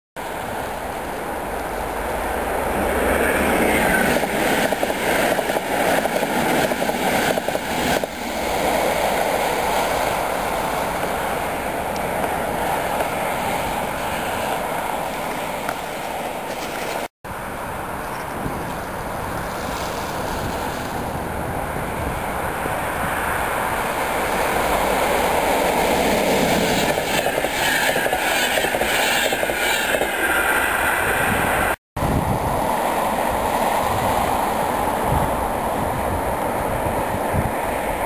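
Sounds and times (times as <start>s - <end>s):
train passing: 0.2s - 38.0s.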